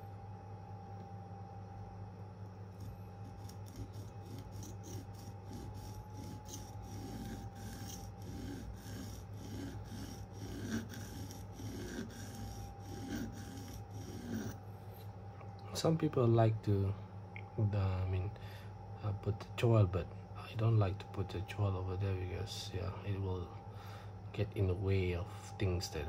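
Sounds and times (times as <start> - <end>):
steady low hum: 0.0 - 26.0
knife blade scraping on sharpening plate: 3.4 - 14.6.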